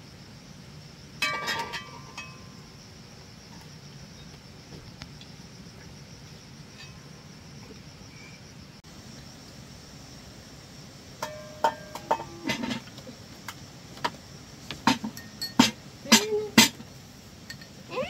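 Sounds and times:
faint hum of insects: 0.0 - 18.0
spoon clinking against bowls: 1.2 - 2.4, 11.2 - 12.8, 15.1 - 16.3, 17.5 - 17.8.

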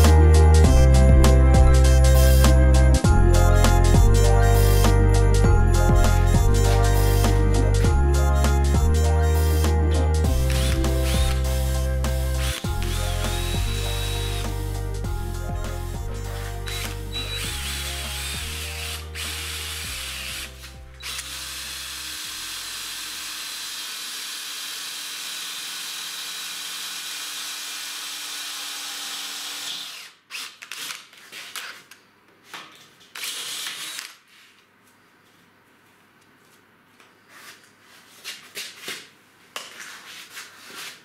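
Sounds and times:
background music with bass line: 0.0 - 21.0
power drill boring into metal: 10.5 - 11.8, 12.4 - 14.6, 16.6 - 31.0, 33.2 - 34.1.

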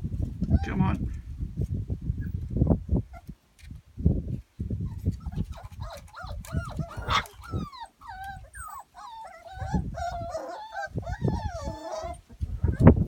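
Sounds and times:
puppies whining and yelping: 4.8 - 13.0.

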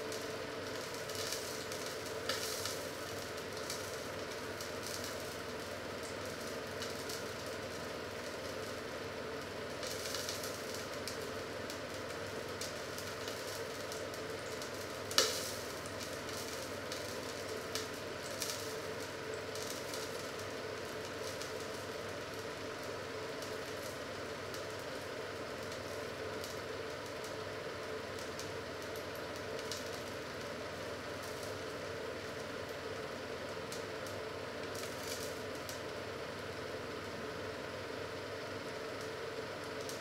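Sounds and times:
frying pan sizzling: 0.0 - 40.0.

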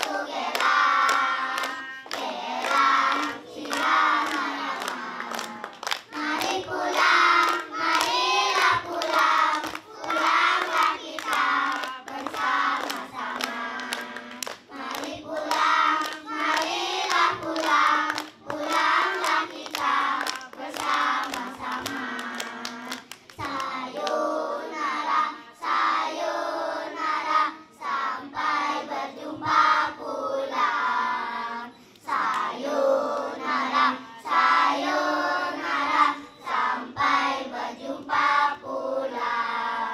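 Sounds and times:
children clapping hands: 0.0 - 24.3, 32.0 - 32.6
children singing: 0.0 - 39.9.

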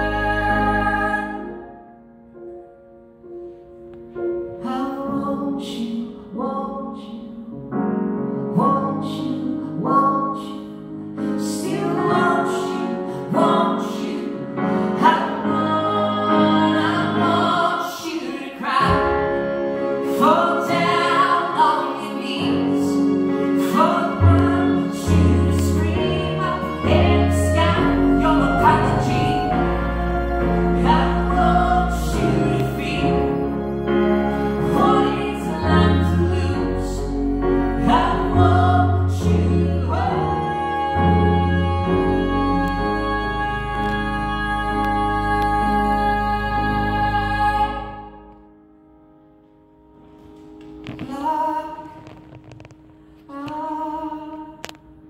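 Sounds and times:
person singing: 0.0 - 1.8, 11.6 - 48.3
grand piano chords: 0.0 - 55.0
violin bowed: 11.6 - 48.2.

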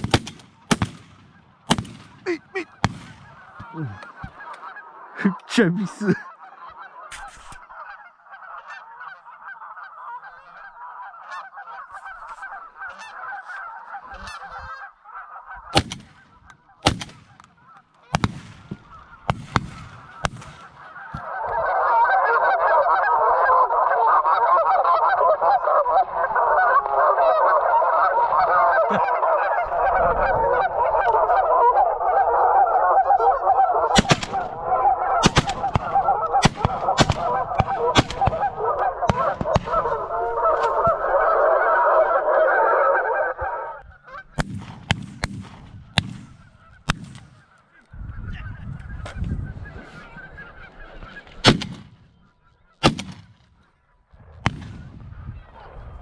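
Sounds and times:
shotgun shots: 0.0 - 3.5, 15.7 - 16.2, 16.8 - 17.5, 18.1 - 20.8, 34.0 - 34.6, 35.2 - 40.8, 44.4 - 47.4, 51.4 - 52.0, 52.8 - 53.6, 54.4 - 55.0
sharp cracks: 0.0 - 3.7, 15.7 - 20.8, 34.0 - 34.6, 35.2 - 40.8, 44.4 - 47.4, 51.4 - 52.0, 52.8 - 53.6, 54.4 - 55.0
geese honking: 0.0 - 44.6, 45.7 - 54.2.

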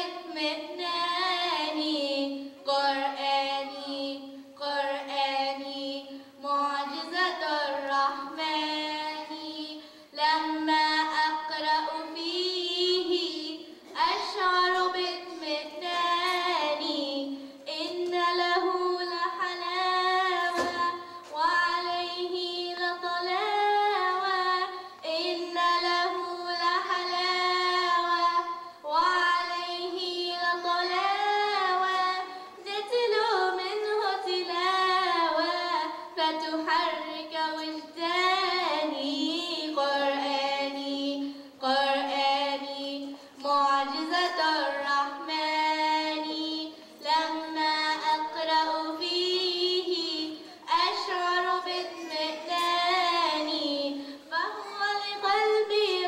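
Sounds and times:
girl singing unaccompanied: 0.0 - 56.0
single brief knock: 20.5 - 20.9.

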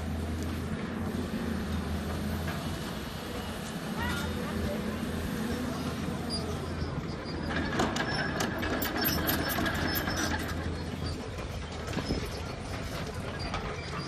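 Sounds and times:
excavator diesel engine running: 0.0 - 14.0
metallic clanking and rattling: 7.2 - 14.0.

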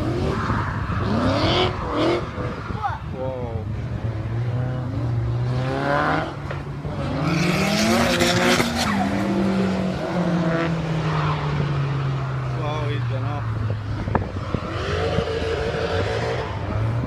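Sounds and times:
car engine revving: 0.0 - 2.8, 3.4 - 17.0.

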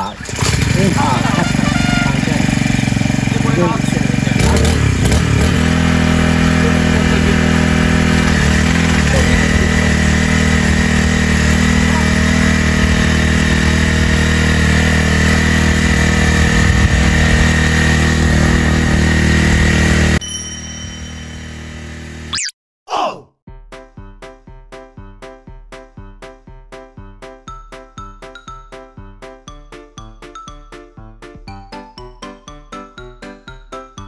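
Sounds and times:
cultivator petrol engine running: 0.0 - 20.2
thin high whine: 20.0 - 22.5.

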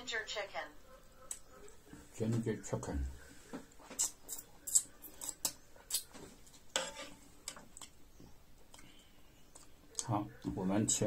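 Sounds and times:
person chewing: 3.7 - 6.7, 7.4 - 10.1.

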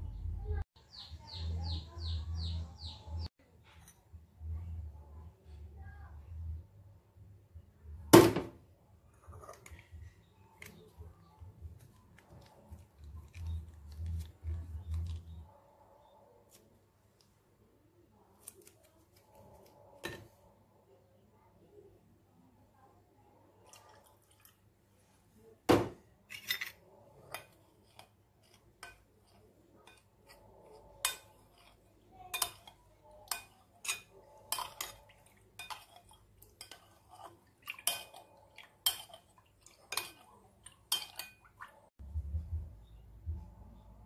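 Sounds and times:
metal spoon clinking glass bowl: 26.3 - 41.7.

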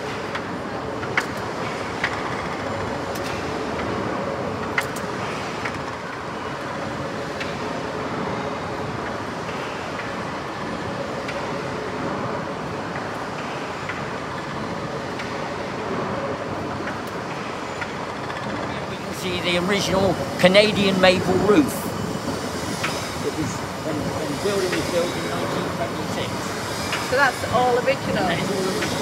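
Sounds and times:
steam engine clatter: 16.8 - 29.0.

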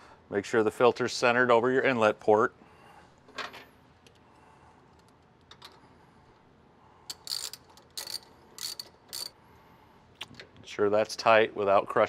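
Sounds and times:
ratchet wrench clicking: 7.1 - 9.4.

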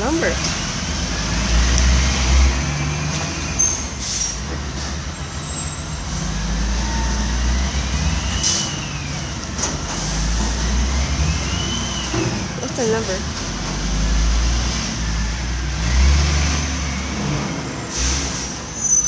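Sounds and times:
diesel truck engines rumbling: 0.0 - 19.0
air brake hisses: 8.4 - 8.8, 17.9 - 19.0.

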